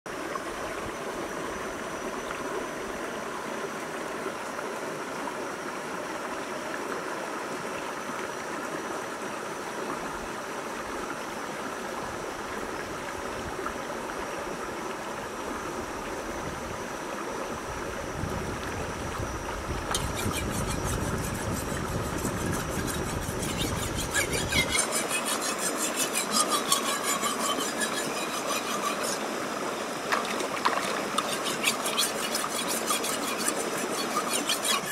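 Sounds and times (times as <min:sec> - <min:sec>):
knife sharpened on stone: 0:20.0 - 0:29.2, 0:31.2 - 0:34.9
river running over rocks: 0:24.5 - 0:34.9.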